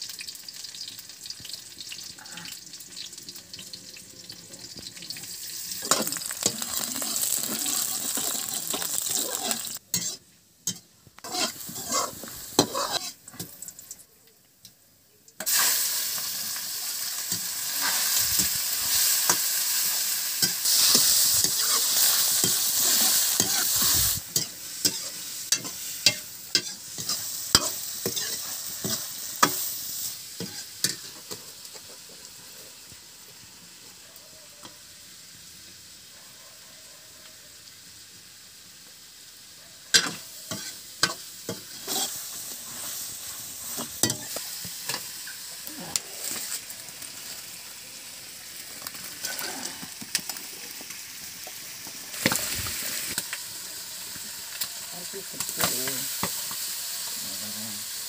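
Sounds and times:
hot oil sizzling: 0:00.0 - 0:58.0
metal spatula scraping pan: 0:05.8 - 0:13.2.

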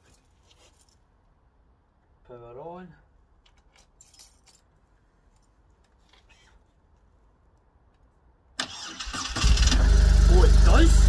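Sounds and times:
keys jingling: 0:03.5 - 0:05.6
starter motor cranking engine: 0:08.6 - 0:11.0.

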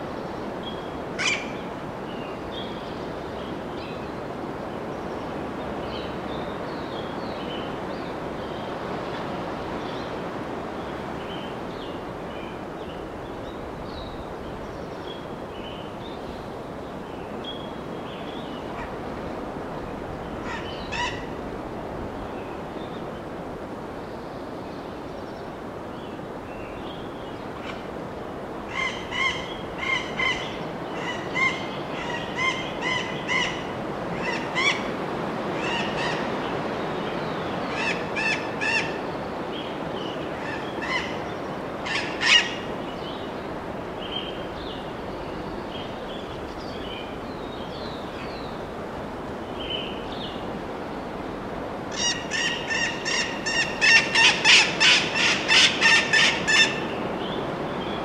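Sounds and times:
birds calling: 0:00.6 - 0:03.2, 0:13.0 - 0:21.5, 0:26.1 - 0:58.0.

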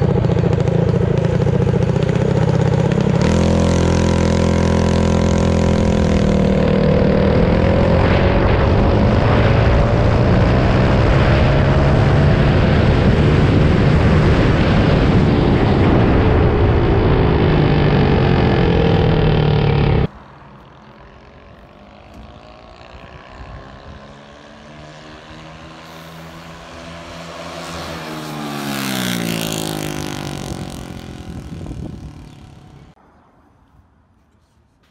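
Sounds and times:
mini bike engine revving: 0:00.0 - 0:20.1, 0:21.0 - 0:33.0
wind rushing over microphone: 0:03.2 - 0:20.1, 0:21.1 - 0:24.4, 0:26.2 - 0:33.0.

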